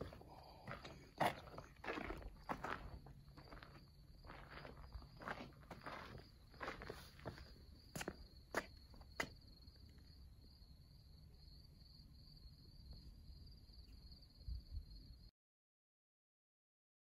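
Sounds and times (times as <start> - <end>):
footsteps on rock: 0.0 - 9.4
crickets trilling: 0.0 - 15.3.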